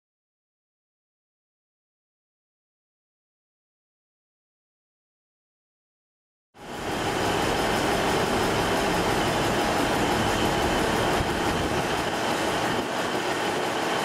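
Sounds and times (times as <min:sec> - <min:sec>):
diesel locomotive engine running: 0:06.6 - 0:13.6.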